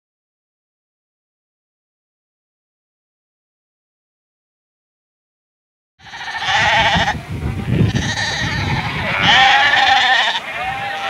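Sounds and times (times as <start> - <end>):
sheep bleating: 6.0 - 11.0.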